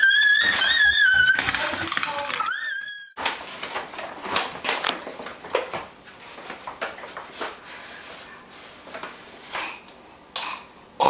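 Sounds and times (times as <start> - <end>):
paper bags rustling: 3.2 - 9.5.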